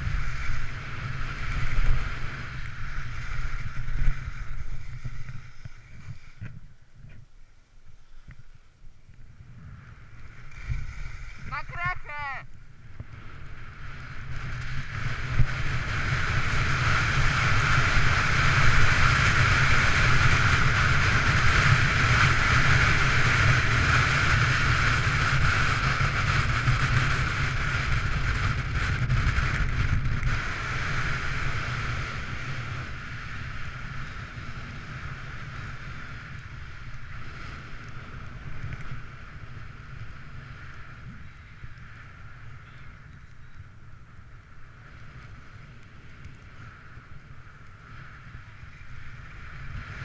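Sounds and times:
skis hissing over snow: 0:00.0 - 0:08.6, 0:09.5 - 0:12.3
wind buffeting microphone: 0:09.0 - 0:45.1.

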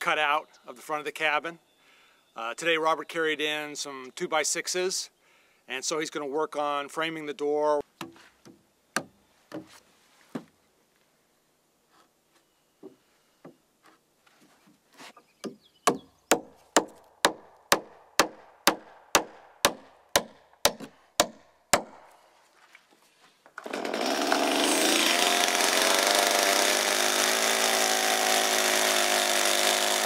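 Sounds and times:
hammer driving nails into wood: 0:15.9 - 0:22.1.

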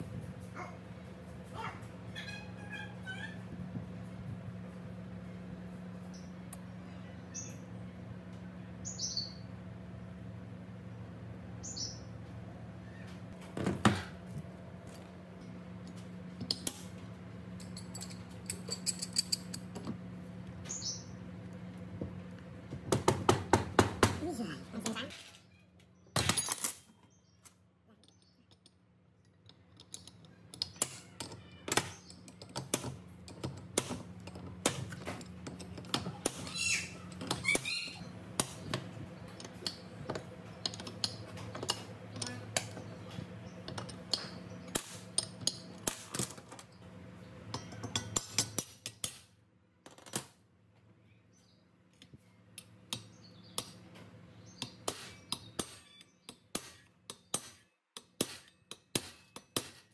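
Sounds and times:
steady low hum: 0:00.0 - 0:49.8
tools and metal parts clattering: 0:15.8 - 0:20.0, 0:26.2 - 0:27.2, 0:28.0 - 0:38.0, 0:38.6 - 0:46.8, 0:47.4 - 0:50.4.

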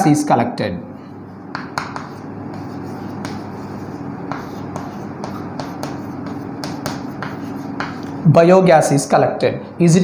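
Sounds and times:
steady low hum: 0:00.0 - 0:10.0
chalk tapping and scratching: 0:01.5 - 0:08.2.

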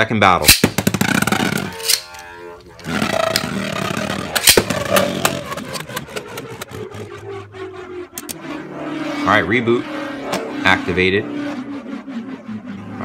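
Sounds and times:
spinning tops whirring on plastic: 0:00.6 - 0:08.8.

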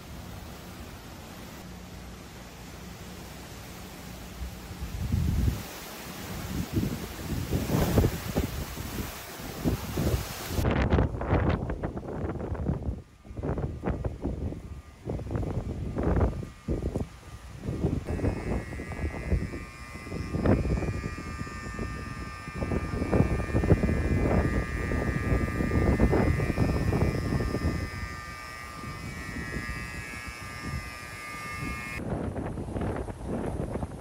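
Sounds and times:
wind gusting on microphone: 0:04.7 - 0:34.0
high buzzing tone: 0:06.4 - 0:32.1.

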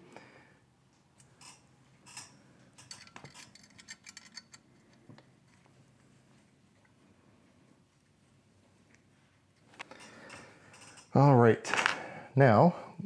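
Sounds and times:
small metallic clicks: 0:01.2 - 0:05.6.

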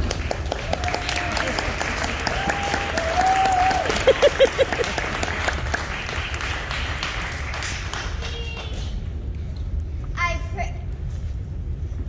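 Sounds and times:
crowd cheering: 0:00.0 - 0:08.8
audience applauding: 0:00.0 - 0:09.0.

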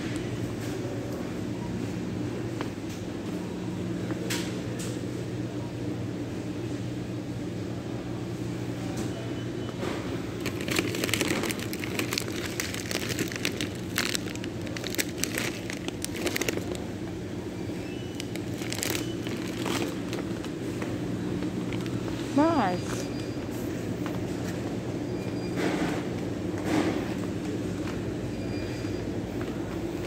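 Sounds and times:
steady low hum: 0:00.0 - 0:30.0
plastic snack bag crinkling: 0:10.4 - 0:16.9, 0:18.0 - 0:20.5.

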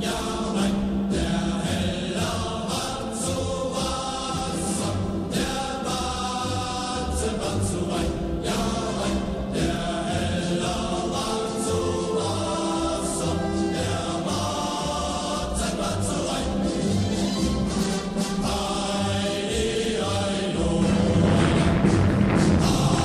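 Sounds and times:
choir singing held chords: 0:00.0 - 0:23.0
low pulsing bass: 0:20.7 - 0:23.0.

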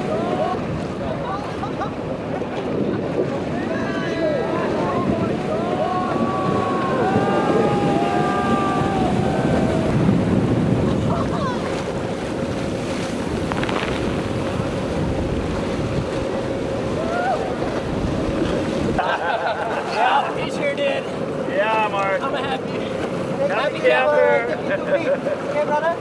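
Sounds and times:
wind on microphone: 0:00.0 - 0:19.1
boat engine hum: 0:00.0 - 0:26.0
breaking surf: 0:00.0 - 0:26.0
people whooping: 0:05.0 - 0:10.3, 0:16.9 - 0:17.7.

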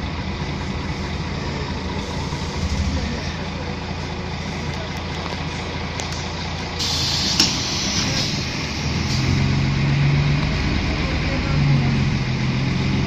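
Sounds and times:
bus engine idling: 0:00.0 - 0:13.0
bus door clunk: 0:06.8 - 0:08.3
pneumatic door hiss: 0:06.8 - 0:09.4.

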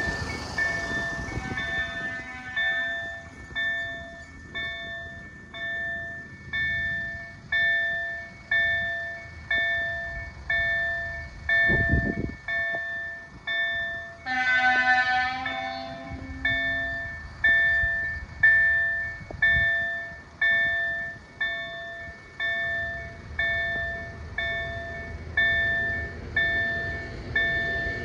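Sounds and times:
level crossing warning bell: 0:00.0 - 0:28.0
train horn: 0:01.2 - 0:03.3, 0:14.2 - 0:16.9.

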